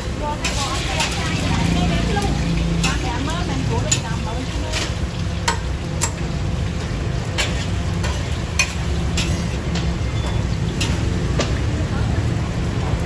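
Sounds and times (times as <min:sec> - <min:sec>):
metal tongs clinking on steel bowls: 0:00.4 - 0:06.3, 0:07.4 - 0:11.1.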